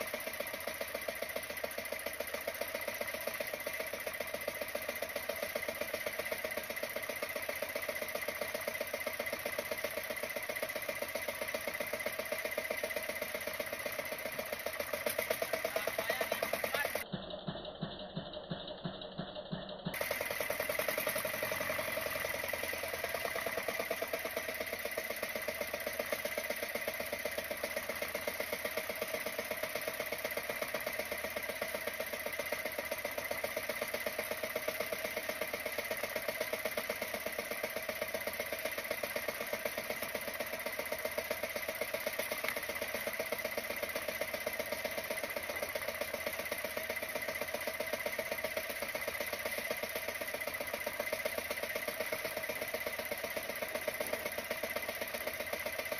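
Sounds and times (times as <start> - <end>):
boat engine puttering: 0.1 - 55.9.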